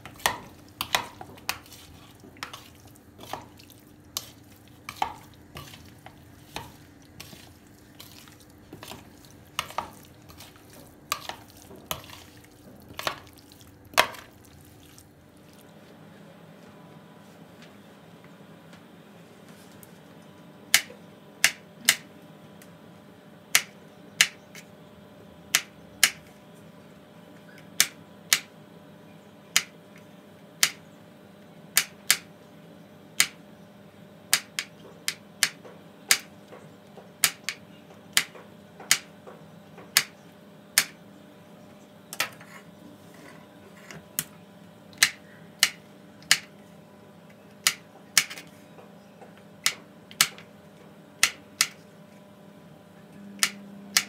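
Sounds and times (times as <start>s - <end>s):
knife chopping on plastic board: 0.0s - 13.3s, 13.9s - 14.3s, 23.5s - 24.6s, 25.5s - 26.3s, 27.8s - 28.5s, 30.6s - 30.8s, 33.2s - 33.4s, 34.3s - 40.1s, 40.8s - 41.0s, 45.0s - 46.5s, 49.6s - 50.5s, 51.2s - 51.8s, 53.4s - 54.0s.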